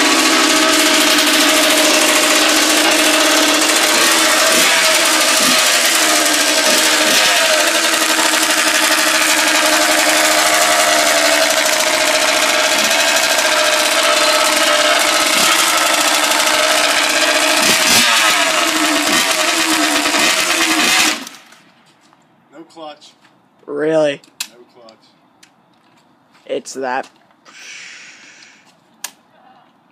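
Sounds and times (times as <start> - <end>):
dirt bike engine running: 0.0 - 21.6.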